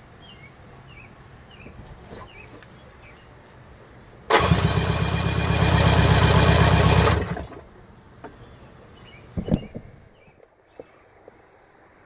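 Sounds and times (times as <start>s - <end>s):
outboard engine cranking: 4.3s - 7.6s.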